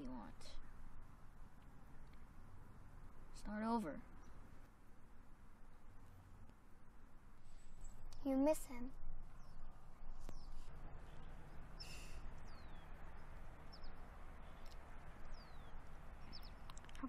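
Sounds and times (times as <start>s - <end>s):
low hiss of air: 0.0s - 17.0s
high bird chirps: 9.2s - 16.8s.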